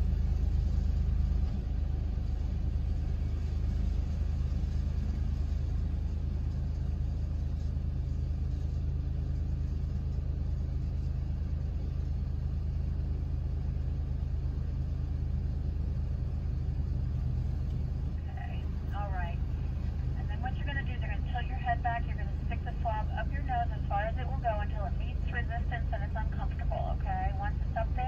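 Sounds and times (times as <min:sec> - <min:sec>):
car engine idling: 0:00.0 - 0:28.0.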